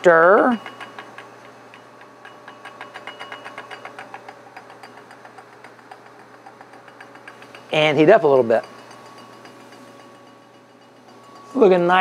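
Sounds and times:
stirrer motor hum: 0:00.0 - 0:11.8.

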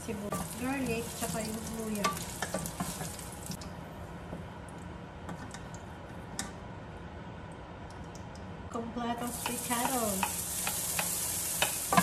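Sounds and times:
oil sizzling: 0:00.0 - 0:03.6, 0:09.2 - 0:12.0
utensils tapping frying pan: 0:00.3 - 0:03.6, 0:09.3 - 0:12.0.

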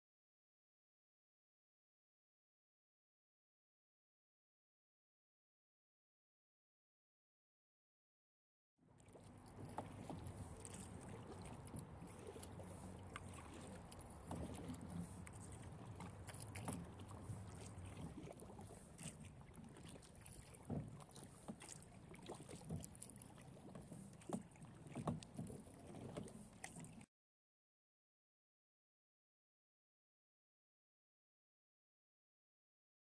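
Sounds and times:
paddle splashes and drips: 0:08.9 - 0:27.1.

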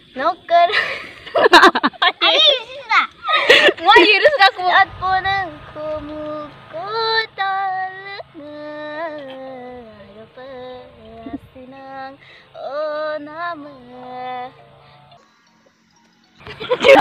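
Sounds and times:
woman singing unaccompanied: 0:03.7 - 0:14.7.

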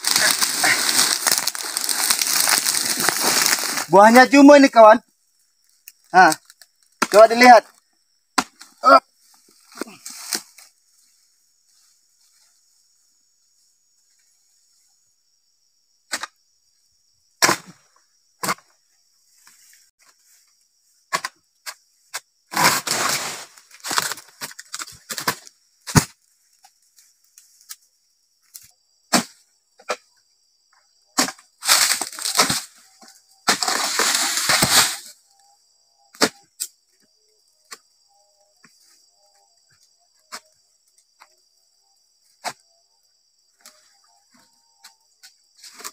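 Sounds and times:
fronds crashing down: 0:00.0 - 0:03.9, 0:33.5 - 0:35.1
crickets chirping: 0:00.0 - 0:45.9
chisel chopping into palm fronds: 0:29.1 - 0:29.9, 0:31.2 - 0:32.7, 0:33.4 - 0:35.1.

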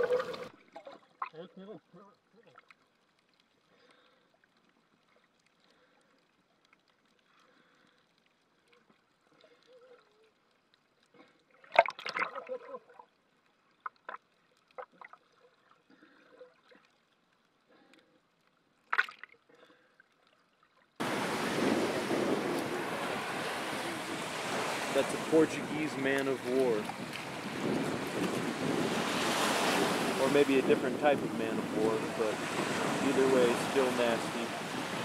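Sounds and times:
underwater crackles and clicks: 0:00.0 - 0:01.4, 0:02.2 - 0:28.8
muffled underwater bursts: 0:21.0 - 0:35.0
surf: 0:21.0 - 0:35.0
wind on microphone: 0:21.0 - 0:35.0.

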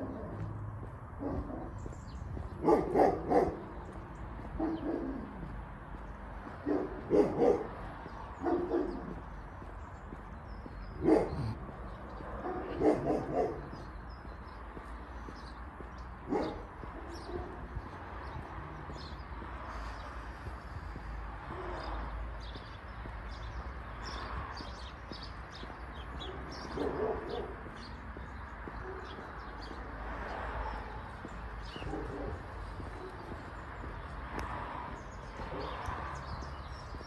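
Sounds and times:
dog barking: 0:01.2 - 0:01.8, 0:02.6 - 0:05.5, 0:06.6 - 0:07.8, 0:08.4 - 0:09.2, 0:11.0 - 0:11.7, 0:12.4 - 0:13.9, 0:16.2 - 0:17.7, 0:26.2 - 0:27.9, 0:28.7 - 0:29.3, 0:31.6 - 0:33.5.

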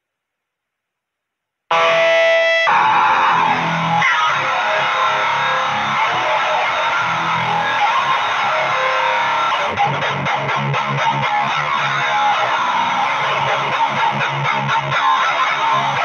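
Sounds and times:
distorted electric guitar riff: 0:01.7 - 0:16.0.

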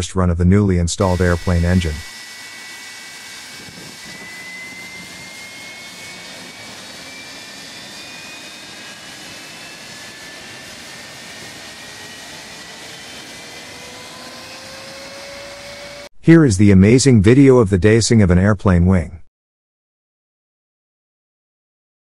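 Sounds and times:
jet engine whine spooling up: 0:01.0 - 0:16.1.

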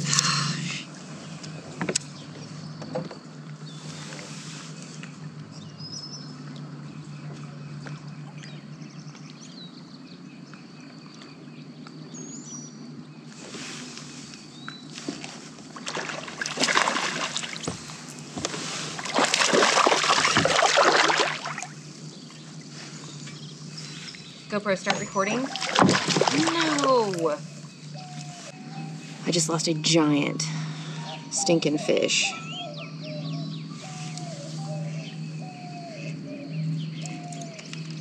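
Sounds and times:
steady low hum: 0:00.0 - 0:38.0
water splashing: 0:15.0 - 0:23.2, 0:24.1 - 0:28.3.

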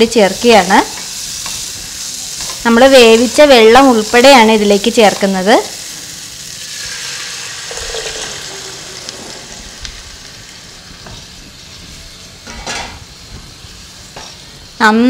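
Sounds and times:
food sizzling in a pan: 0:00.0 - 0:15.0
liquid pouring into a pan: 0:06.6 - 0:09.6.

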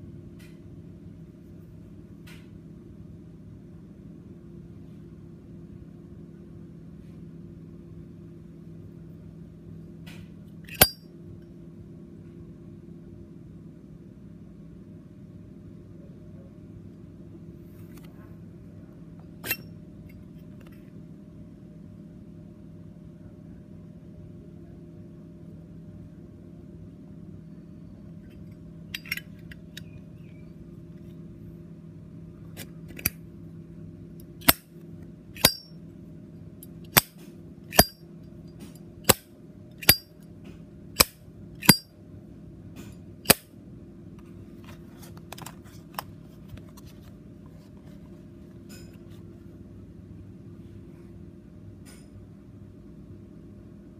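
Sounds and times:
low hum: 0:25.5 - 0:40.3.

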